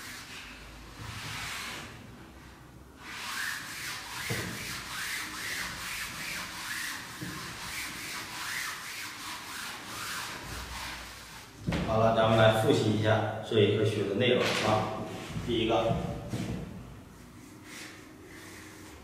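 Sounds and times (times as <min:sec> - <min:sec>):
eraser scrubbing chalkboard: 0:00.0 - 0:02.0, 0:03.0 - 0:11.6, 0:17.2 - 0:19.0.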